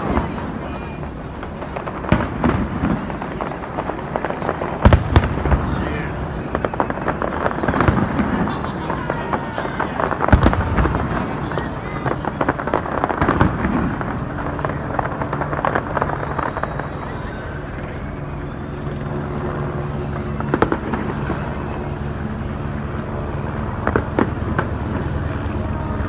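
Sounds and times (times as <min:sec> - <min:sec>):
fireworks bangs: 0:00.0 - 0:26.0
fireworks crackling: 0:00.0 - 0:26.0.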